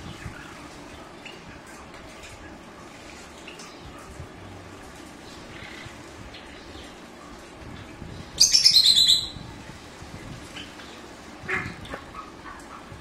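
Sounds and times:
sparrows chirping: 8.4 - 9.4.

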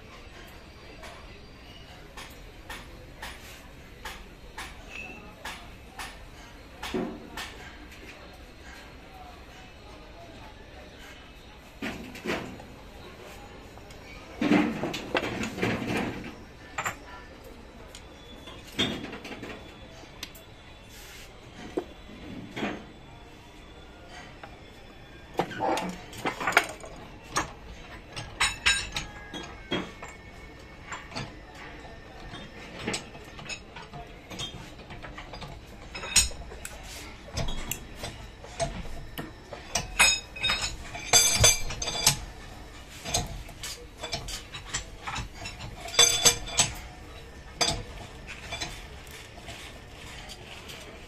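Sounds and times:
metal tools clinking: 32.4 - 51.0.

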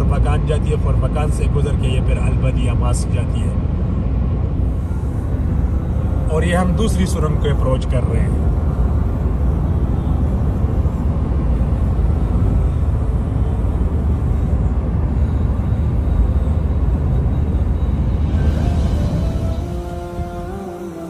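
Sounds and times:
car driving on motorway: 0.0 - 21.0
music: 18.2 - 21.0.

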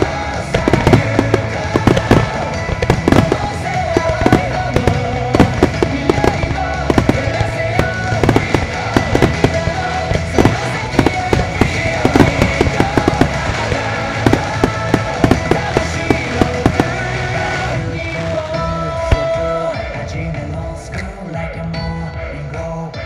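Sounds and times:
firework shells bursting: 0.0 - 17.4
music through loudspeakers: 0.0 - 23.0.

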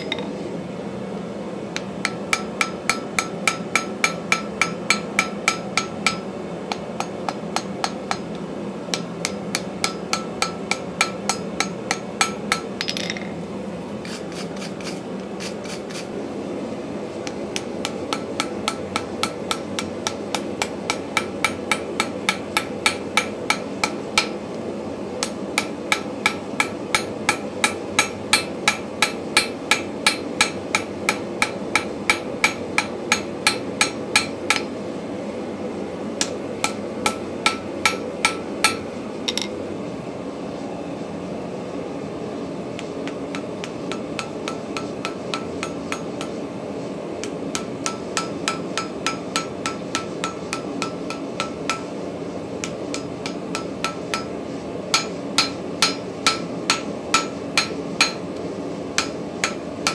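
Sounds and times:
hammer striking anvil: 0.0 - 0.3, 2.0 - 13.3, 17.6 - 24.4, 25.2 - 34.7, 36.2 - 39.6, 43.0 - 46.4, 47.2 - 51.9, 52.6 - 54.3, 54.9 - 58.2, 59.0 - 59.9
wire brush scrubbing: 14.0 - 16.1.

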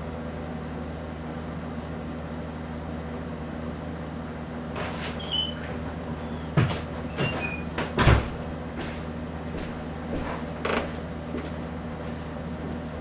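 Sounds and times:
ceiling fan motor humming: 0.0 - 13.0
knocks and creaks: 4.8 - 9.0, 10.1 - 11.5.

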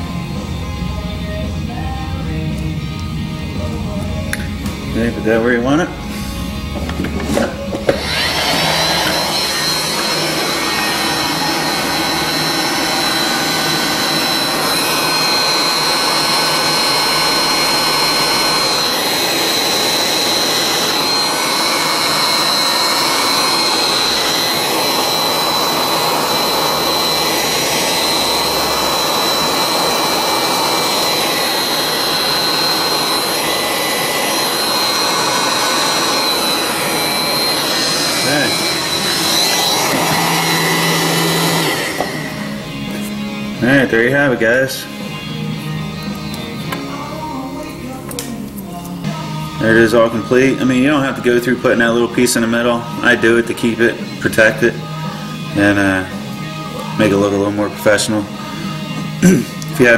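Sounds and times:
heat gun high whine: 4.3 - 48.4, 49.0 - 59.9
heat gun air rush: 5.0 - 44.1.

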